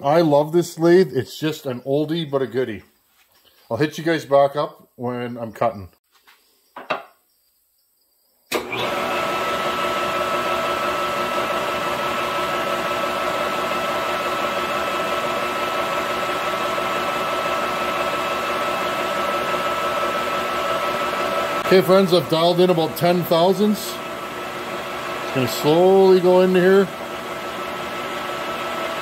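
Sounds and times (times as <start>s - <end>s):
lathe starting with clunk: 8.5s - 13.2s
lathe running with whine: 8.6s - 29.0s.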